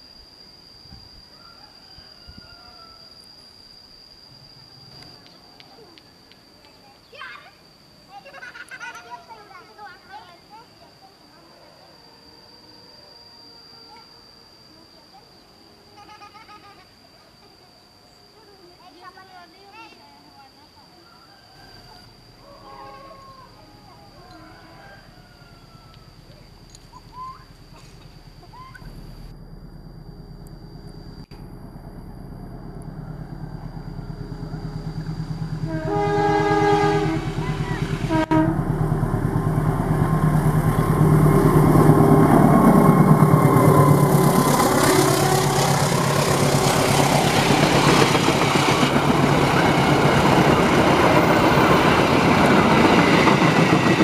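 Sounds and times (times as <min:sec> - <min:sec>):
diesel locomotive engine: 0:20.3 - 0:54.0
train horn: 0:22.4 - 0:26.0, 0:34.0 - 0:48.1
train coaches rumbling and clattering: 0:31.3 - 0:54.0.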